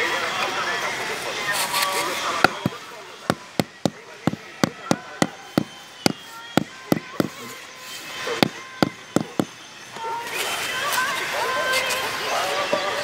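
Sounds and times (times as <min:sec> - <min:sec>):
rubber mallet knocking on tile: 0:02.5 - 0:02.7, 0:03.3 - 0:07.4, 0:08.4 - 0:09.5.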